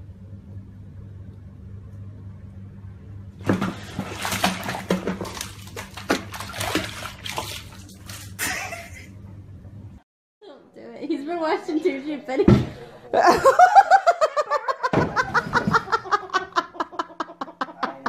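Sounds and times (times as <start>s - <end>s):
steady low hum: 0.0s - 10.0s
bathwater splashing: 3.4s - 9.1s.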